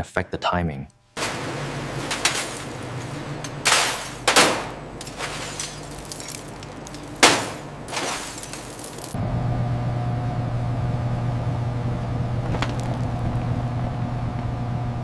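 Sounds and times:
steady low hum: 0:01.0 - 0:15.0
metal chains clattering on steel table: 0:01.2 - 0:09.2.

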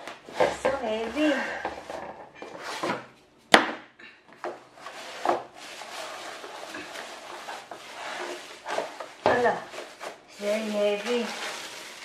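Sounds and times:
cardboard scraping: 0:00.0 - 0:03.1, 0:04.7 - 0:12.0
plastic wrapping rustling: 0:04.7 - 0:12.0.

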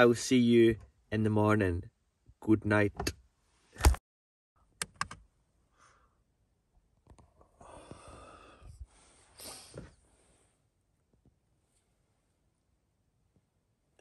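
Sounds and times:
breathy exhale: 0:07.6 - 0:10.6.

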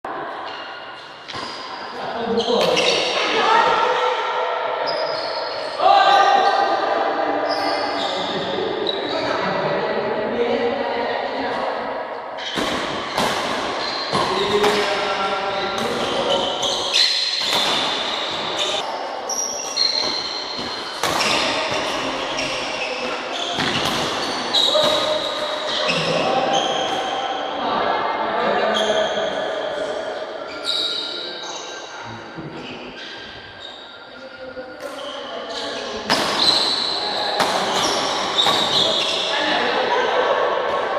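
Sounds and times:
shoes squeaking on court floor: 0:00.4 - 0:03.3, 0:04.9 - 0:05.8, 0:12.4 - 0:27.2, 0:30.5 - 0:31.8, 0:32.6 - 0:39.5
rackets striking shuttlecock: 0:12.4 - 0:15.1, 0:15.8 - 0:18.8, 0:19.6 - 0:25.8.

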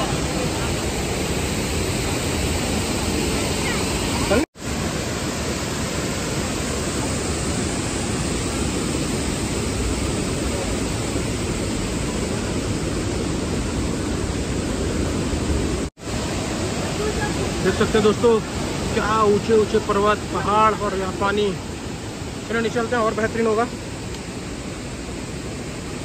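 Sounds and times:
waterfall roaring: 0:00.0 - 0:26.0.

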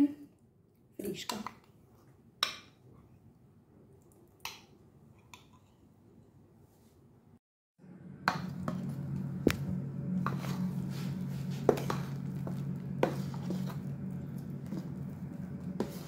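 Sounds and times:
low steady hum: 0:07.8 - 0:16.0.

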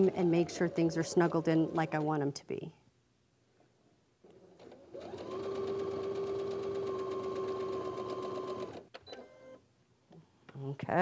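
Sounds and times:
sewing machine stitching: 0:00.0 - 0:02.3, 0:04.6 - 0:08.9.

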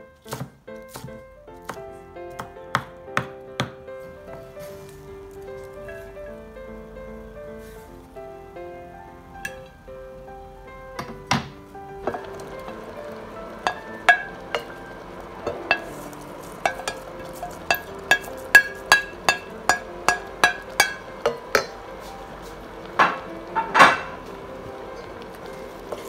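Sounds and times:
wooden spoon knocking on plate and pot: 0:11.0 - 0:14.8, 0:15.4 - 0:21.8.

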